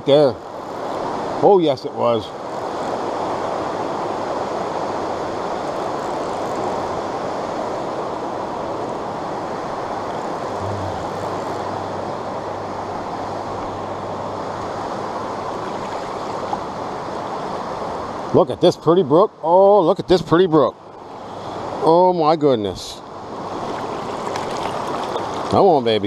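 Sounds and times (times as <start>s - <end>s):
stream rushing over rocks: 6.6s - 18.4s, 23.1s - 26.0s.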